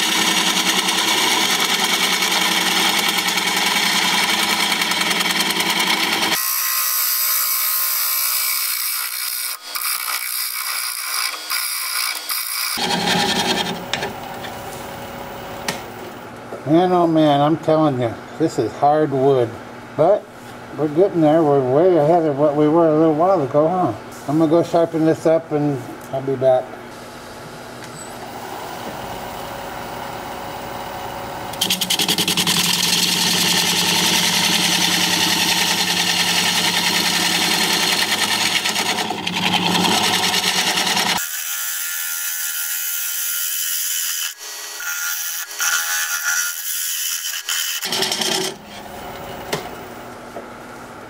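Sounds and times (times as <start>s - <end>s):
turning tool rasping cut: 0.0s - 13.8s, 31.5s - 48.8s
wood lathe spinning: 0.0s - 14.6s, 28.3s - 42.7s, 46.7s - 49.6s.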